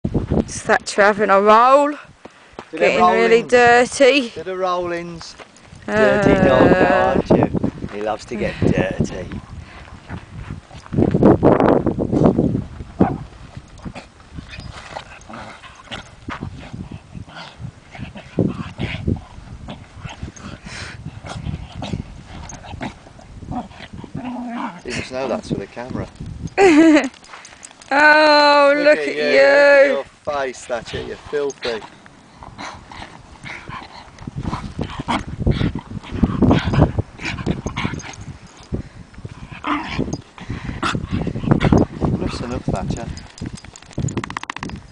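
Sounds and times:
dog vocal noises: 13.0 - 25.1, 31.2 - 38.6.

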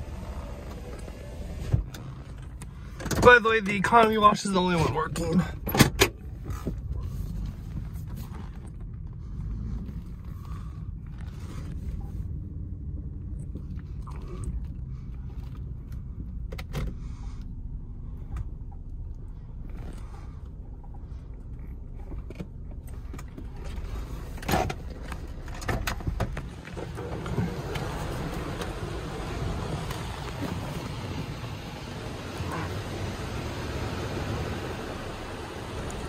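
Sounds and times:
car wash low rumble: 0.0 - 36.0
water spray drumming on car: 26.8 - 36.0.

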